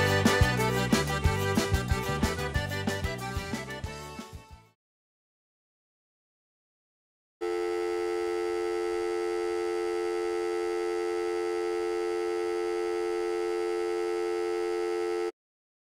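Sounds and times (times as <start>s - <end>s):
telephone dial tone: 7.4s - 15.3s.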